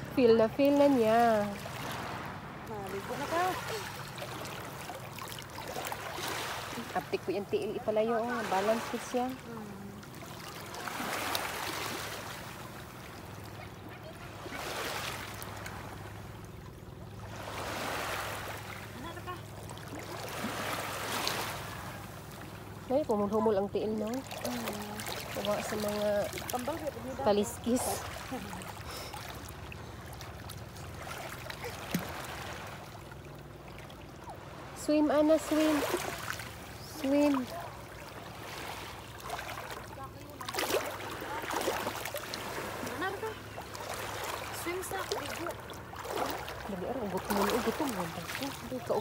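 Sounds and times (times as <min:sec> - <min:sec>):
water lapping on pebble shore: 0:10.1 - 0:13.5, 0:22.9 - 0:33.3, 0:34.4 - 0:49.0
small waves washing over pebbles: 0:10.2 - 0:13.2.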